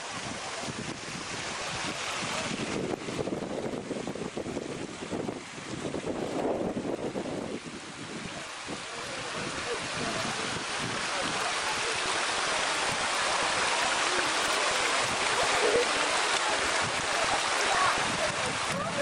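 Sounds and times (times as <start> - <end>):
stream water rushing: 0.0 - 19.0.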